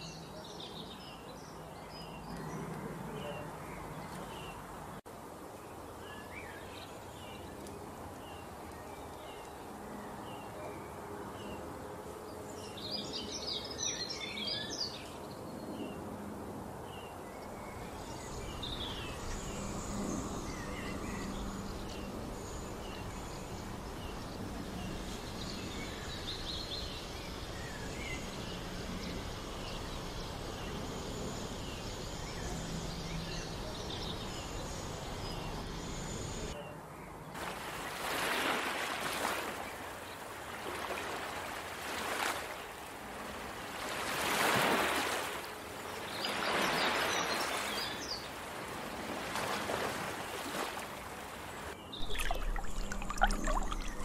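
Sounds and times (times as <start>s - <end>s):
steady background hiss: 0.0s - 54.0s
birds chirping: 16.9s - 38.0s, 51.4s - 54.0s.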